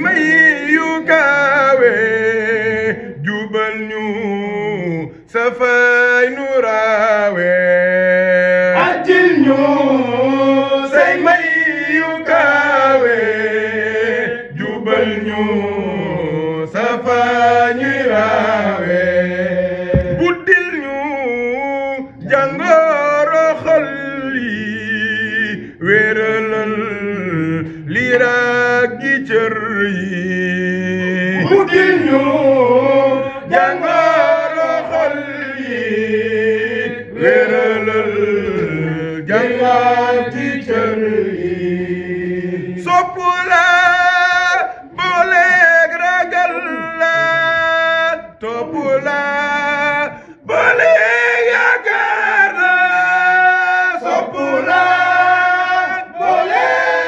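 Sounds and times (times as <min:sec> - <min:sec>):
man chanting: 0:19.9 - 0:35.6, 0:42.8 - 0:51.3.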